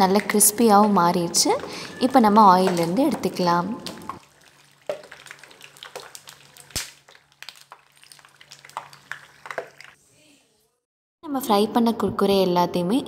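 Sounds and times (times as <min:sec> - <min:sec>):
faint oil sizzle: 0:04.2 - 0:10.0.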